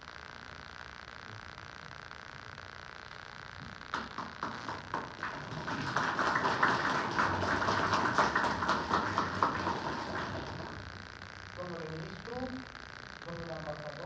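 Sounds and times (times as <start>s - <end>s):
audience applause: 3.9s - 10.8s.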